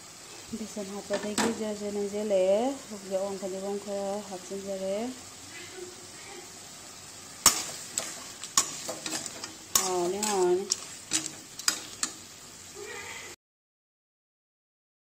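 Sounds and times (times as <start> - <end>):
curry simmering sizzle: 0.0 - 13.4
metal spatula scraping pan: 7.4 - 12.3.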